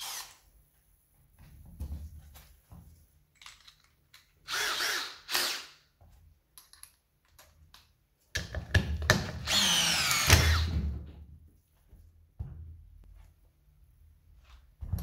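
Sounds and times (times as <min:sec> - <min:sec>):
cordless drill driving nut: 0:00.0 - 0:00.4, 0:09.4 - 0:10.7.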